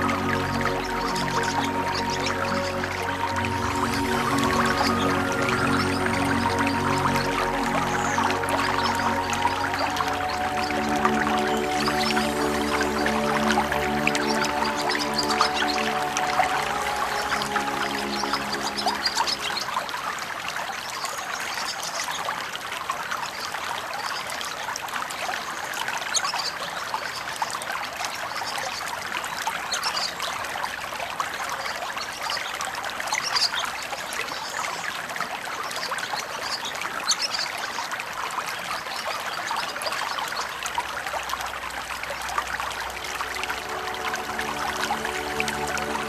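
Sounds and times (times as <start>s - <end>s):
river water trickling and bubbling: 0.0s - 46.0s.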